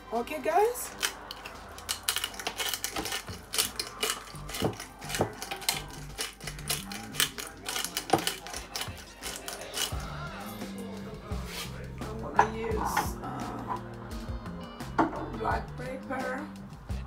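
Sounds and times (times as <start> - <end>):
pepper jar shaking rattle: 0.9 - 10.6.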